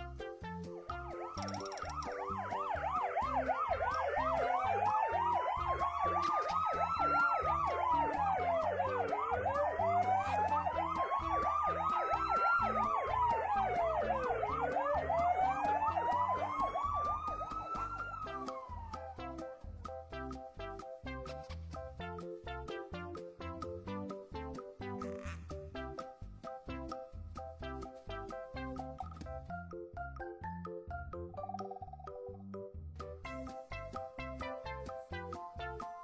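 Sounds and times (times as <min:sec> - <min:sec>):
toy ambulance siren: 0:01.0 - 0:19.4.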